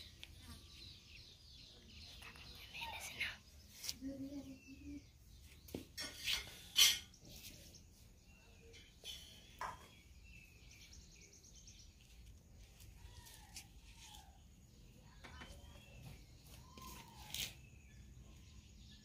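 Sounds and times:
faint bird calls: 0:12.6 - 0:18.4.

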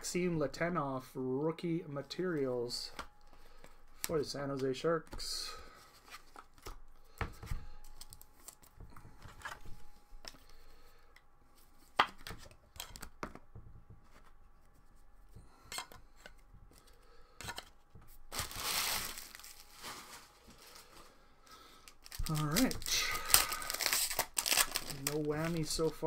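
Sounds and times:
faint steady hum: 0:00.0 - 0:26.0
cards and plastic holders rustling: 0:02.0 - 0:26.0
foil wrapper torn open: 0:18.3 - 0:21.0, 0:21.8 - 0:26.0.

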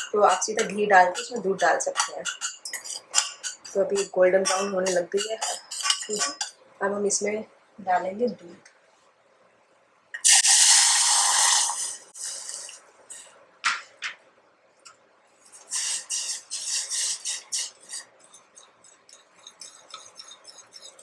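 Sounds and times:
steel spoon scraping pan: 0:00.0 - 0:06.6, 0:15.5 - 0:21.0
milk hissing into hot pan: 0:10.2 - 0:13.3, 0:15.6 - 0:18.0.

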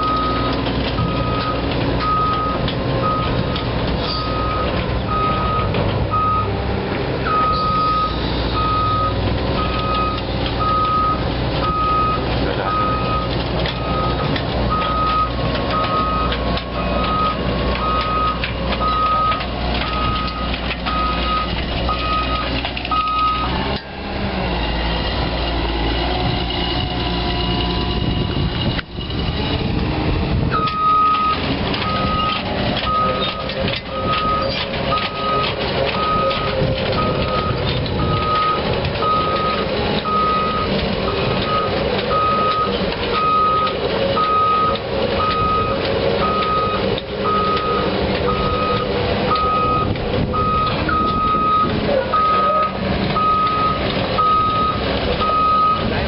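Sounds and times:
excavator diesel engine running: 0:00.0 - 0:56.0
travel alarm beeping: 0:01.0 - 0:03.4, 0:07.3 - 0:16.4, 0:17.0 - 0:23.5, 0:30.6 - 0:55.9.

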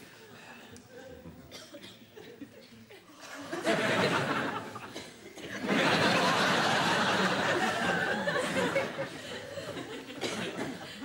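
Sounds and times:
audience laughing: 0:02.2 - 0:11.0.

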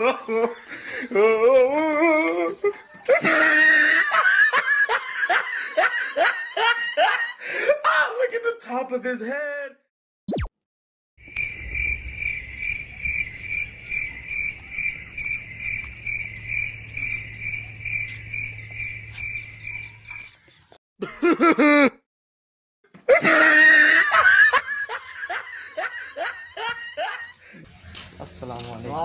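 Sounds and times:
loud burst of laughter: 0:02.6 - 0:07.5, 0:23.1 - 0:27.4
high cricket-like chirps: 0:11.2 - 0:20.4.

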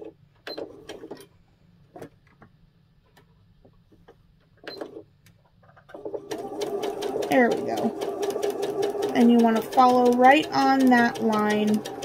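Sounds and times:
sewing machine mechanical sound: 0:05.8 - 0:12.0.

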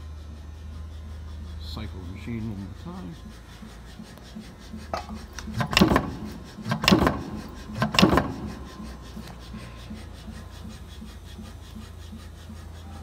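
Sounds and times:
punch press strokes: 0:04.9 - 0:08.7.

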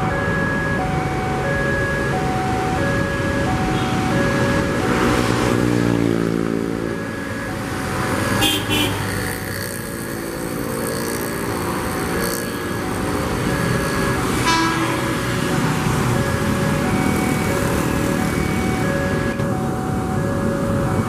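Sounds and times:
road traffic engines: 0:00.0 - 0:21.0
electric train approaching: 0:09.1 - 0:19.2
level-crossing warning bell: 0:10.5 - 0:21.0.

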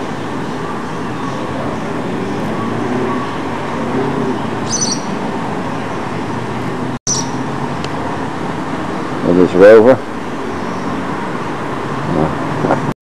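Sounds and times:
distant traffic: 0:00.0 - 0:12.9
high bird chirp: 0:04.6 - 0:05.2, 0:07.1 - 0:07.4.

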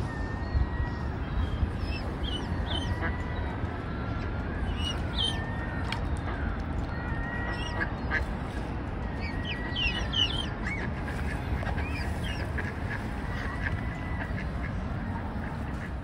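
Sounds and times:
low wind rumble: 0:00.0 - 0:16.0
waterfowl chirping calls: 0:07.2 - 0:08.4, 0:09.2 - 0:14.8.

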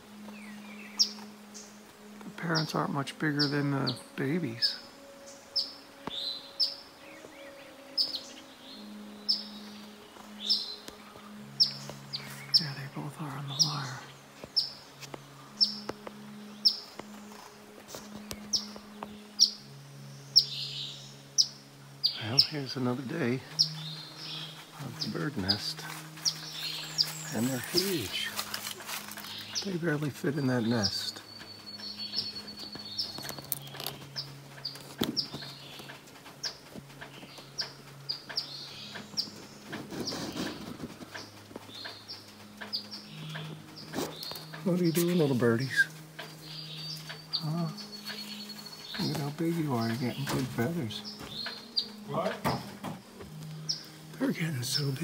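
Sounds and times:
soft rustle: 0:09.8 - 0:19.2, 0:23.5 - 0:52.1
bird chip calls: 0:20.3 - 0:55.0.

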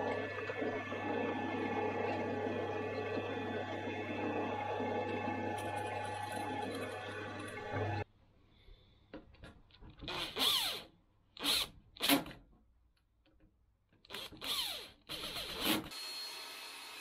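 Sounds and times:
steady machine noise: 0:00.0 - 0:08.0
cordless drill driving screws: 0:14.1 - 0:16.5.

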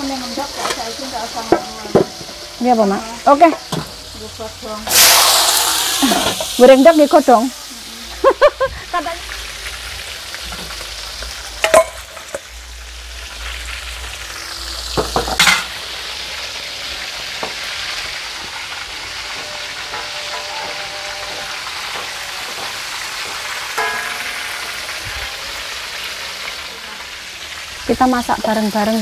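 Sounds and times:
spices sizzling in hot oil: 0:00.0 - 0:29.0
metal spatula clinking on wok: 0:23.7 - 0:25.0.

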